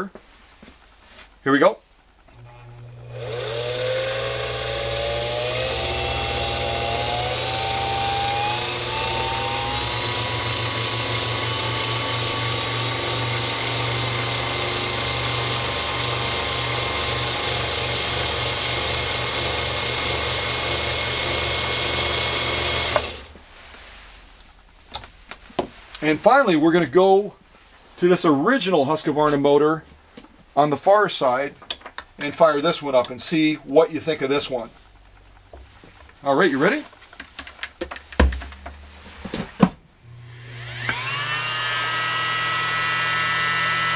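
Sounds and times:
sewing machine motor whine: 2.3 - 23.3, 40.1 - 43.9.

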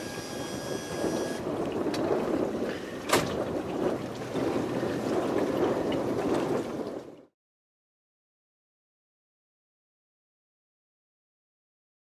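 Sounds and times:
thin high whine: 0.0 - 1.4
boat engine low rumble: 0.0 - 7.4.

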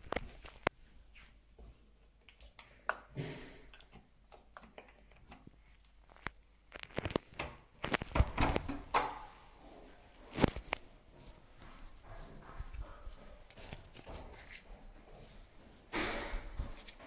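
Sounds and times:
door handle rattling: 7.4 - 9.2.

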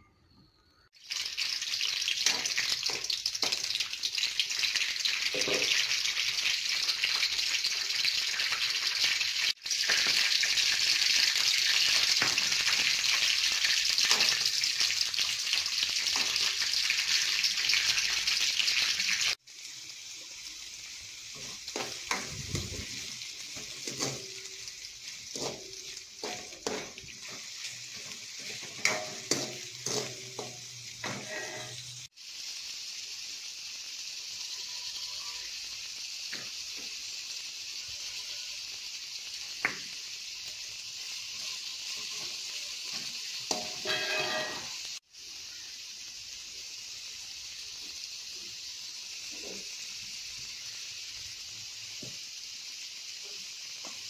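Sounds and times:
oil sizzling in a wok: 0.3 - 54.0
spatula scraping and tapping pan: 23.6 - 24.5, 25.3 - 31.8, 42.9 - 44.7.

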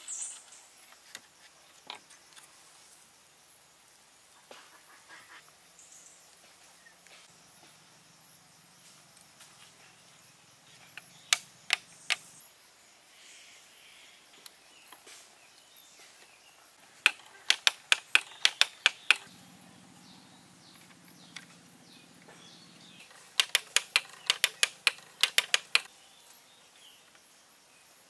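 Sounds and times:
sharp clicks of bamboo parts: 10.9 - 12.3, 16.9 - 19.3, 23.0 - 25.9.

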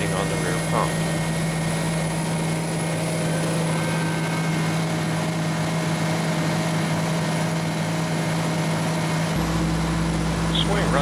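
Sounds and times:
excavator engine droning: 0.0 - 11.0.

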